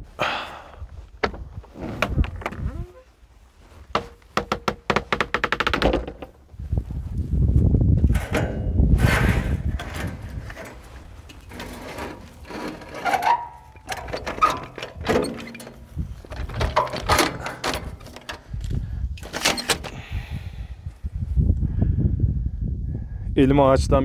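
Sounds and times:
metal ladder clanking: 0:08.0 - 0:18.5, 0:19.2 - 0:20.0.

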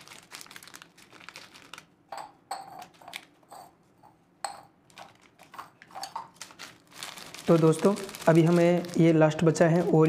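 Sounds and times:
plastic wrapper crinkling: 0:00.0 - 0:02.0, 0:04.9 - 0:10.0.

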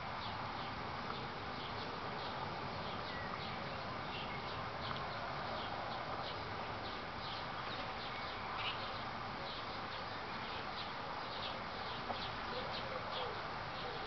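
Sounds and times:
outdoor background noise: 0:00.0 - 0:14.0
small birds chirping: 0:00.0 - 0:14.0.

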